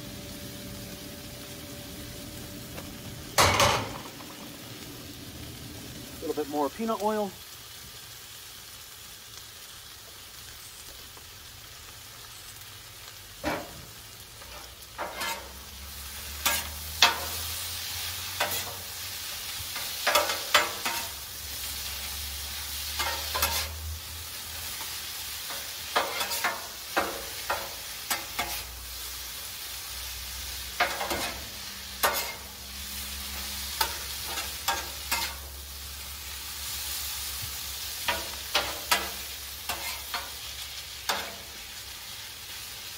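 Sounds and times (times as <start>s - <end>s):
food sizzling on a griddle: 0.0s - 42.9s
metal spatulas scraping steel: 14.4s - 15.6s, 16.4s - 17.3s, 23.0s - 23.8s, 32.0s - 32.5s, 33.8s - 35.4s, 39.7s - 40.3s.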